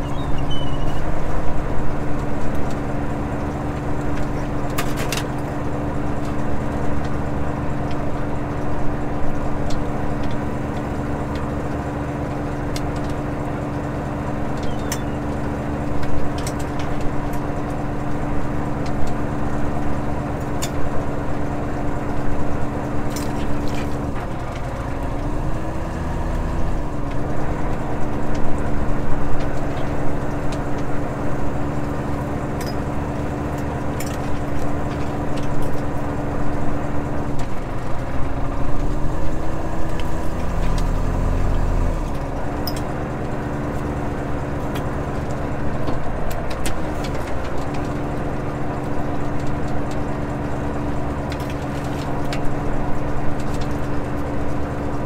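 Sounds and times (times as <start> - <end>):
boat engine hum: 0.0 - 55.0
gear clicking and knocking: 0.1 - 55.0.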